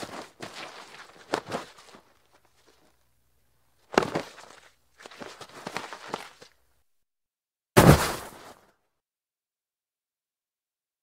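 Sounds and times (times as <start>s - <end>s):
body thudding into snow: 7.8s - 8.6s.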